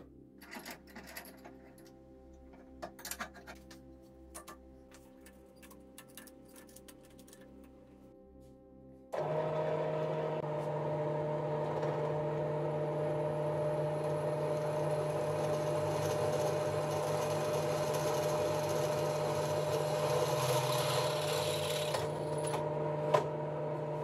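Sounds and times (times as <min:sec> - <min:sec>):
drill press motor hum: 0:09.2 - 0:24.0
drill bit cutting metal hiss: 0:14.5 - 0:22.0.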